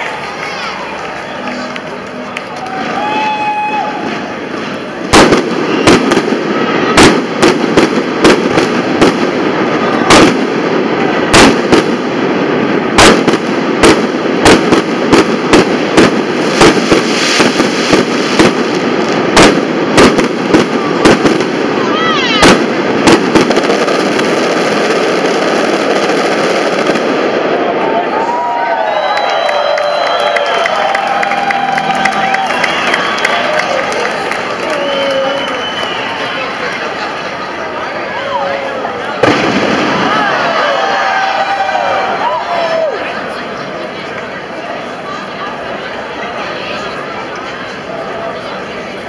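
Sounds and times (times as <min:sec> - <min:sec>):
crowd noise: 0:00.0 - 0:49.0
fireworks bursting with loud bangs: 0:04.0 - 0:27.8, 0:39.0 - 0:40.8.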